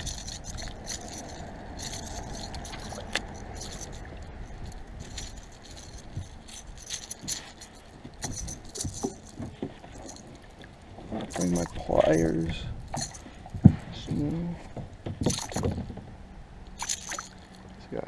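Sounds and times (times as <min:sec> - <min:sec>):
lure rattles shaking: 0:00.0 - 0:10.6, 0:11.3 - 0:13.6, 0:15.2 - 0:15.7, 0:16.8 - 0:17.6.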